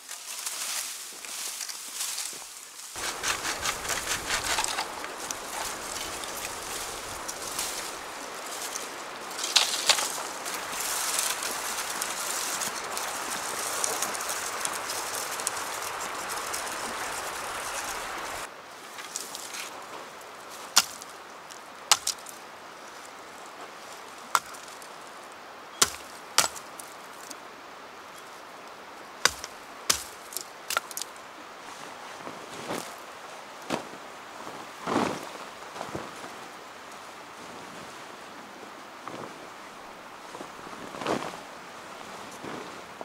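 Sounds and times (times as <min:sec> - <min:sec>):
steady rushing noise: 0:03.0 - 0:18.5
blade chopping into wood: 0:21.9 - 0:22.2, 0:25.8 - 0:26.6, 0:29.3 - 0:30.1.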